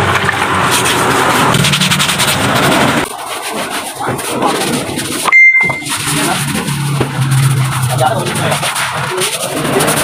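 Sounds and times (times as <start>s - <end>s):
brush scrubbing: 0.4s - 10.0s
high steady beep: 5.3s - 5.9s.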